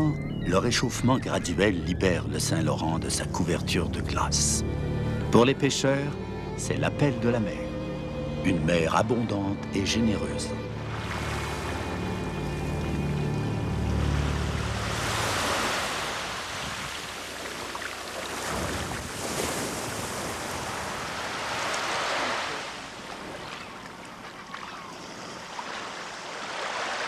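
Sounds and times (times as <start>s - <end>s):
small waves breaking on sand: 10.8s - 27.0s.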